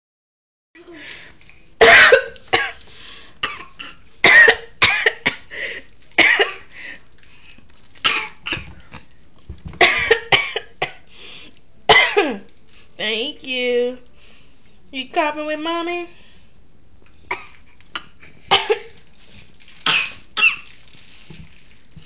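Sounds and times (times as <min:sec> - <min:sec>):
toddler coughing: 0:01.8 - 0:02.8, 0:08.0 - 0:08.7, 0:11.9 - 0:12.3, 0:17.3 - 0:19.0, 0:19.8 - 0:20.7
woman fake coughing and gagging: 0:01.8 - 0:02.8, 0:03.4 - 0:05.5, 0:11.9 - 0:12.4.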